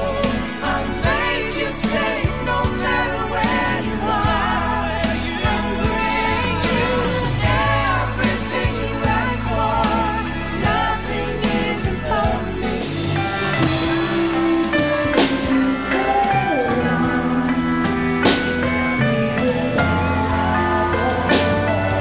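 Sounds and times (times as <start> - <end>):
pop band music: 0.0 - 22.0
cymbal crash: 13.1 - 22.0.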